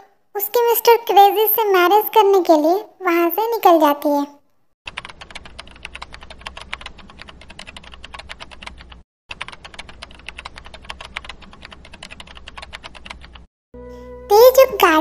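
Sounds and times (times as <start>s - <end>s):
keyboard typing clicks: 4.9s - 13.5s.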